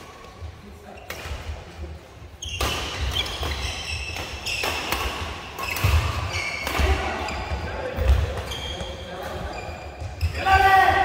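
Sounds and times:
rackets hitting shuttlecock: 2.4 - 8.9
shoes squeaking: 2.4 - 10.4.

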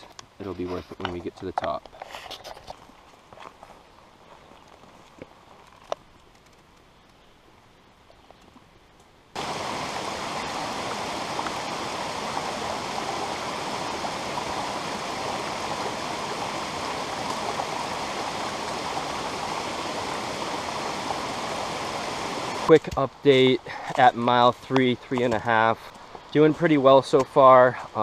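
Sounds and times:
stream rushing over boulders: 9.4 - 28.0.

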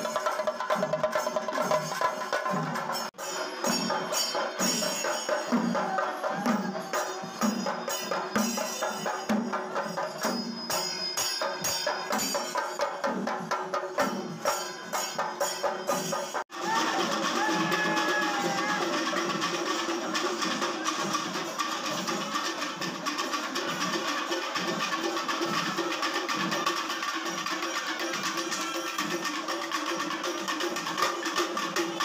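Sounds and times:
drums beaten with sticks: 0.0 - 32.0
hand cymbals ringing: 0.0 - 32.0.

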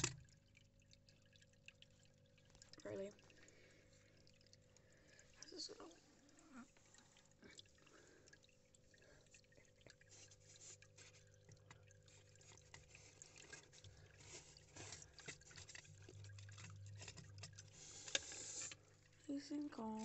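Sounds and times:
faint small ticks and clicks: 0.0 - 20.0
low steady hum: 0.0 - 20.0.

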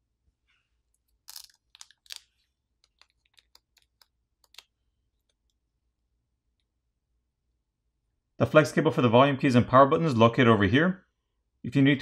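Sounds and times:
tape and film crinkling: 1.2 - 5.4.

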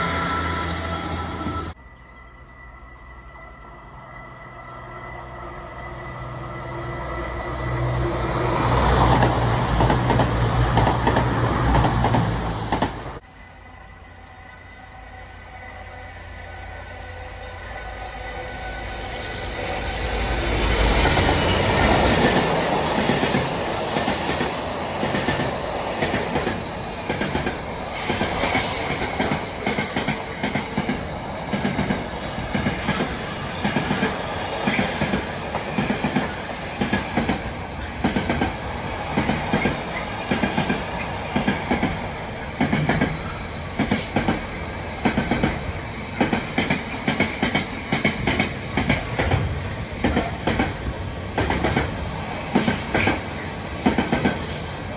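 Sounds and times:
diesel locomotive passing: 0.0 - 54.9.

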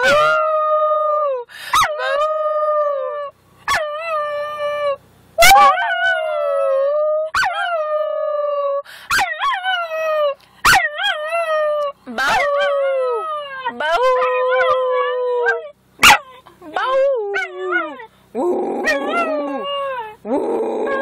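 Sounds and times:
dog howling: 0.0 - 21.0
person howling: 16.7 - 21.0.

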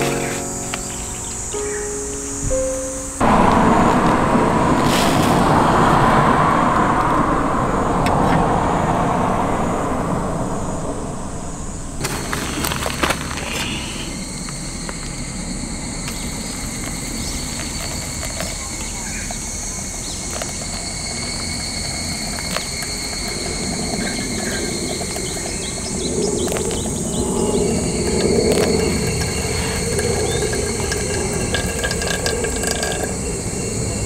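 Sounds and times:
birds chirping: 0.0 - 3.4, 13.4 - 34.0
insects buzzing: 0.0 - 34.0
water trickling onto coffee grounds: 20.0 - 27.0, 27.6 - 33.2.

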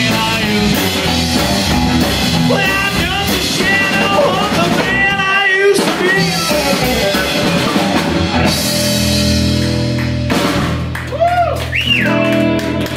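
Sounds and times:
person singing: 0.0 - 1.6, 2.3 - 8.1
drum kit: 0.0 - 12.9
guitar: 0.0 - 12.9
upright bass: 0.0 - 12.9.

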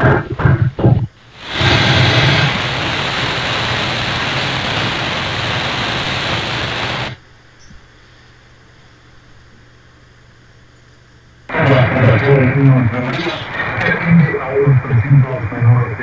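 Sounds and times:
faint low hum: 0.0 - 16.0
radio static hiss: 0.0 - 16.0.

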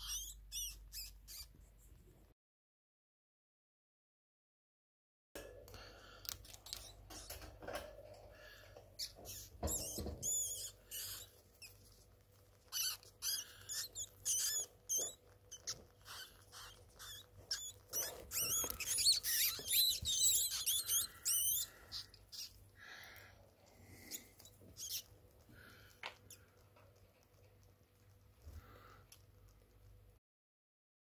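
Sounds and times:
rats squeaking: 0.0 - 1.6, 6.3 - 30.1
rats scratching in cage: 6.4 - 22.8, 23.9 - 28.4.

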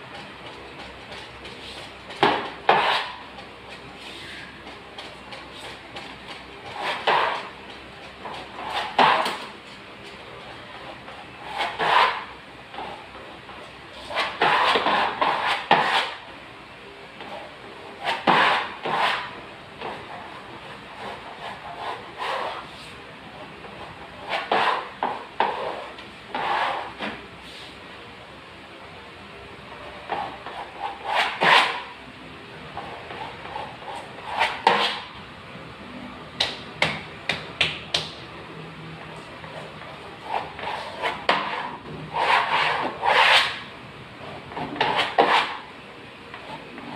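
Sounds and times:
scraping against wallpaper: 0.1 - 10.2, 20.9 - 23.0, 24.2 - 27.8, 30.1 - 31.9, 32.8 - 35.1, 39.2 - 43.7, 44.6 - 45.7.

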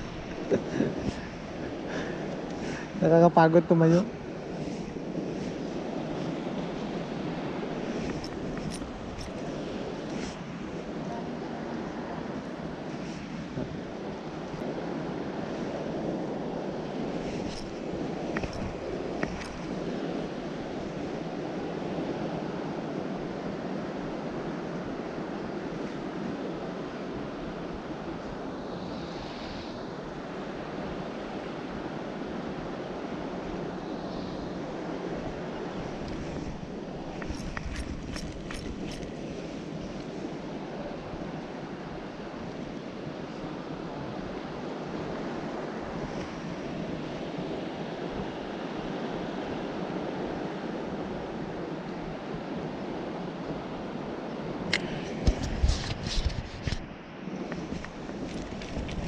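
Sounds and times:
sea waves washing: 0.0 - 59.0
wind on microphone: 0.0 - 59.0
sharp click: 54.7 - 56.8.

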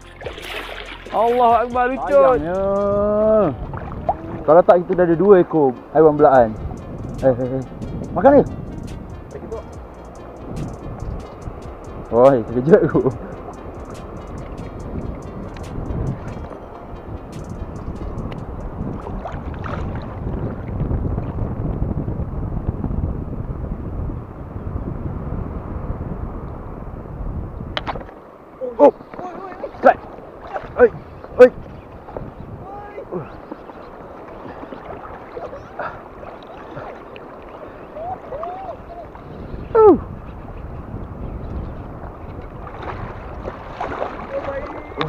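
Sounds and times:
sea washing: 0.0 - 21.6, 27.7 - 45.0
wind rumbling on microphone: 0.0 - 45.0
faint wavering calls: 31.1 - 41.9.

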